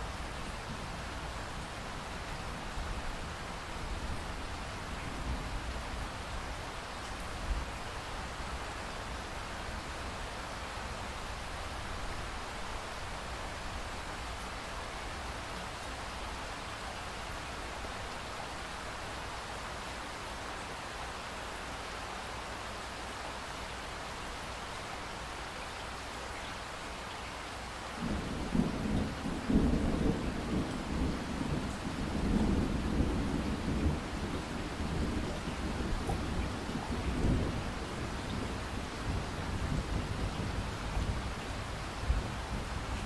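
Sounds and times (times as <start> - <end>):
steady rain hiss: 0.0 - 43.0
thunder rumble: 28.0 - 41.2.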